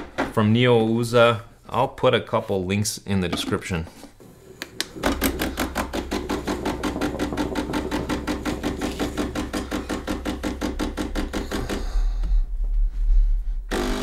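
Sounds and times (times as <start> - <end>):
espresso pump humming and pulsing: 13.7 - 14.0.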